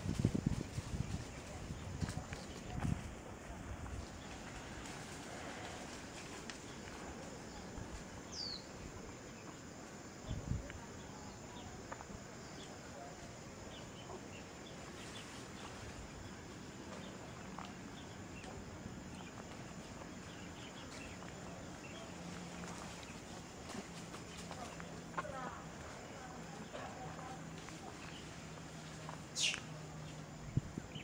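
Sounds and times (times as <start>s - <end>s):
bird chirp: 8.3s - 9.6s, 26.6s - 31.0s
footsteps on dirt trail: 16.8s - 29.2s.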